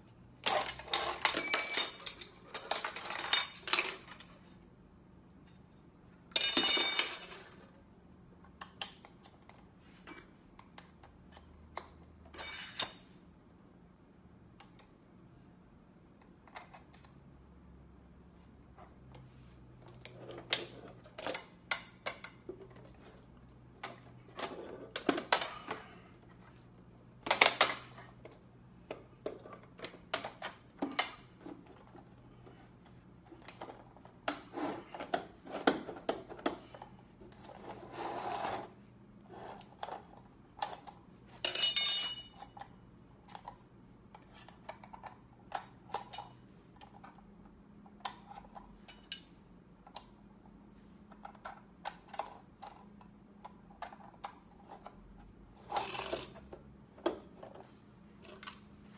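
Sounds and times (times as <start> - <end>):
metal and plastic parts clattering: 0.4 - 4.6, 19.8 - 26.5, 39.4 - 50.0, 51.0 - 58.7
metal tube ringing clink: 41.5 - 42.4.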